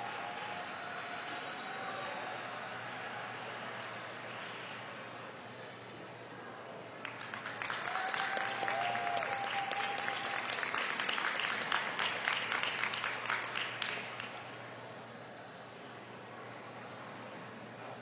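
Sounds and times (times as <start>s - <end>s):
audience applauding: 7.0s - 14.7s.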